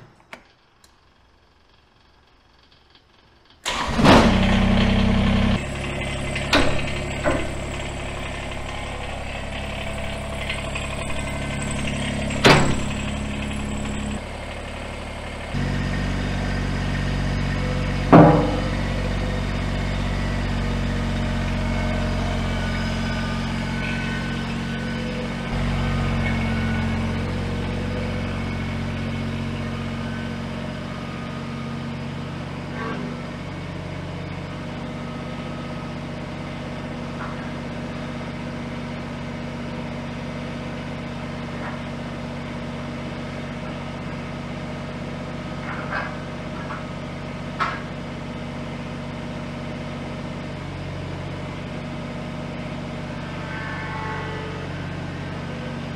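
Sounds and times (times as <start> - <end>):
diesel tractor engine running: 3.6 - 53.1
sharp clunks: 5.6 - 14.2.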